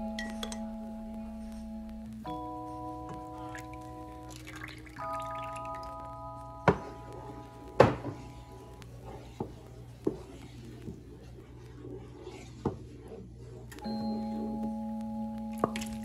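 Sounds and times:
background music with plucked notes: 0.0s - 8.0s, 13.8s - 16.0s
spatula stirring thick soup: 6.9s - 13.7s.

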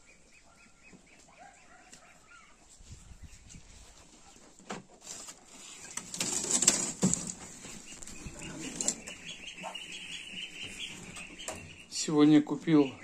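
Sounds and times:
loud rustling clatter: 5.0s - 9.1s.

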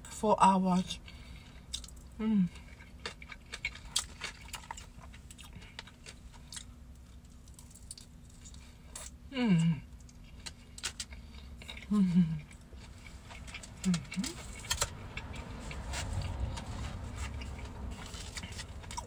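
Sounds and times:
chewing with crackles: 1.1s - 19.0s
person humming mm: 2.2s - 2.5s, 9.3s - 9.9s, 11.9s - 12.4s, 13.8s - 14.4s.

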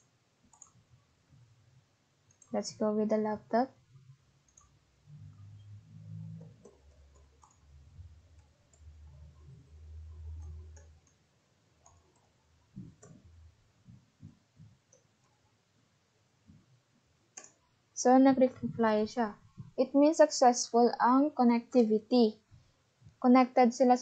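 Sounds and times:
mouse clicks: 6.4s - 7.6s.

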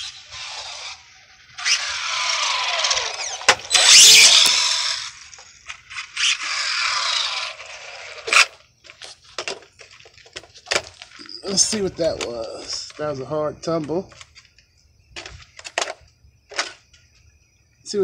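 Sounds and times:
rc car electric motor whining: 0.0s - 10.4s.

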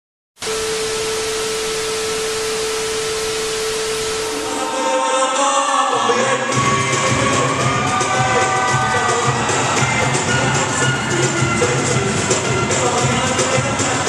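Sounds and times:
held tone: 0.4s - 5.0s
tv static hiss: 0.4s - 5.0s
music with singing voices: 4.3s - 14.0s.

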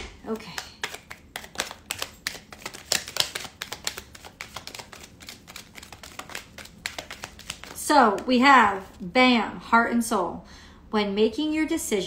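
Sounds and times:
cards being shuffled: 0.0s - 8.3s.

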